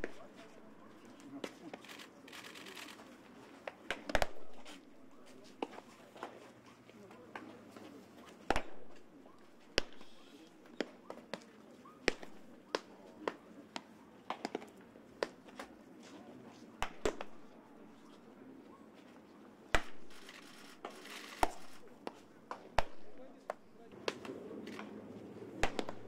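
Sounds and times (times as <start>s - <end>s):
baseballs popping into leather mitts: 12.1s - 15.7s, 16.8s - 17.5s, 20.8s - 24.9s, 25.6s - 26.0s.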